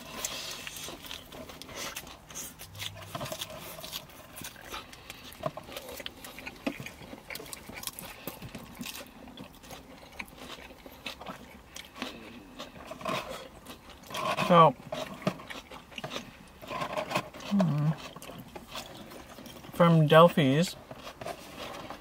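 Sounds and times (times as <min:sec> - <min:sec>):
people chewing and smacking: 0:00.0 - 0:22.0.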